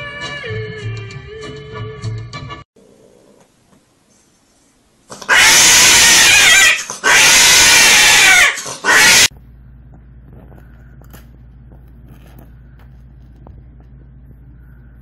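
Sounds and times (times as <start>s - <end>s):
cat yowling: 5.3s - 9.3s.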